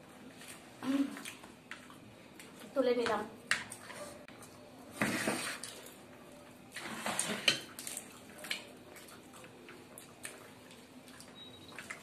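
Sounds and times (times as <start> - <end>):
wet chewing and lip-smacking: 7.7 - 12.0.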